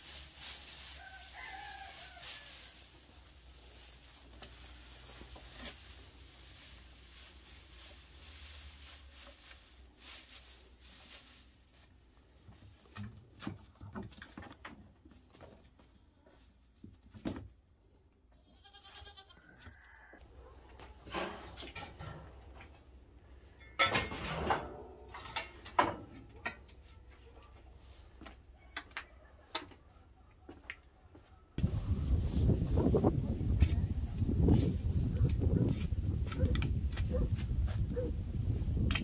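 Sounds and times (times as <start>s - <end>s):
dry hay rustling: 0.0s - 14.4s, 31.6s - 38.9s
goat bleating: 18.4s - 19.8s.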